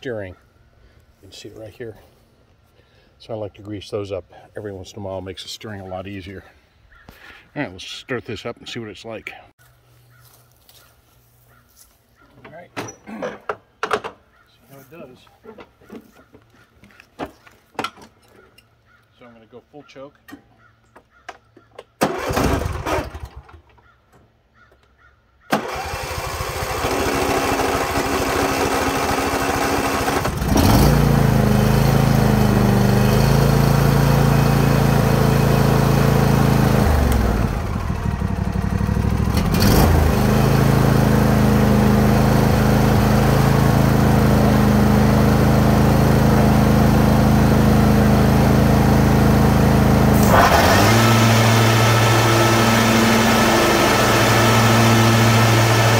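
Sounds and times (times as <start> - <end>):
engine cranking on starter: 22.0 - 23.7, 25.5 - 47.5, 49.3 - 55.9
lawn tractor engine running: 22.0 - 23.8, 25.5 - 55.9.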